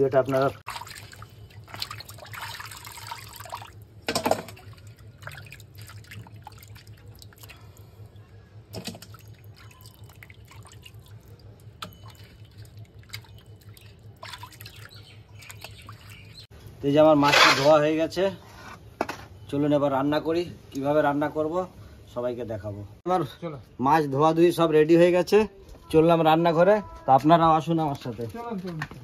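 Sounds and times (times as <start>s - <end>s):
water splashing in a steel bowl: 0.1s - 16.5s.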